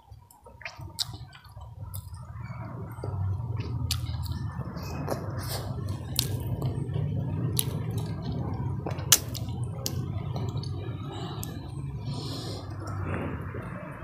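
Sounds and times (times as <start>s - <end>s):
low steady hum: 0.0s - 14.0s
wet chewing and lip-smacking: 0.1s - 13.3s.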